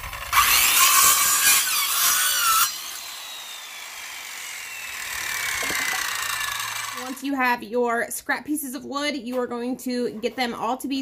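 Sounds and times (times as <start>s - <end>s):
saw blade whine spinning down: 0.0s - 7.3s
circular saw cutting wood: 0.0s - 7.4s.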